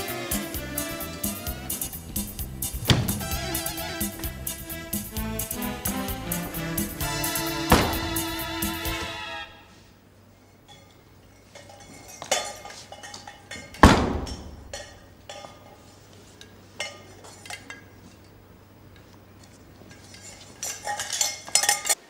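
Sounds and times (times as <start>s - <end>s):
loud ringing bang: 2.6s - 3.8s, 6.5s - 9.1s
metal cookware clinking: 10.6s - 15.9s, 16.8s - 18.0s, 19.9s - 22.0s.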